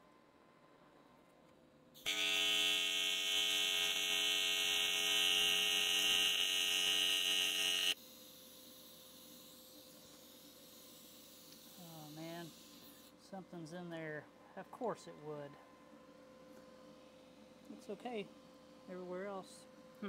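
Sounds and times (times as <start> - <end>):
welding arc buzzing: 2.0 - 8.0.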